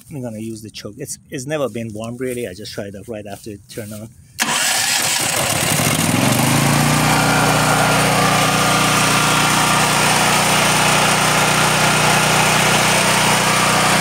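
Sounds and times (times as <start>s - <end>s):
generator engine running: 4.4s - 14.0s.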